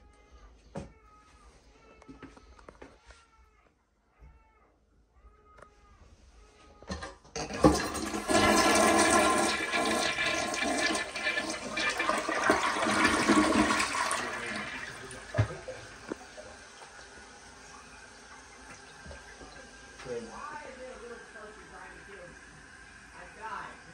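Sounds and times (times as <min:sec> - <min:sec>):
toilet flushing: 0:07.3 - 0:23.9.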